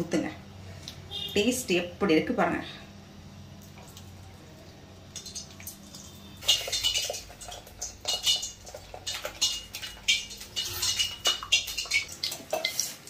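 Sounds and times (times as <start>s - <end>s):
faint steady hum: 0.0s - 12.5s
metal pan clinking on steel bowl: 6.4s - 13.0s.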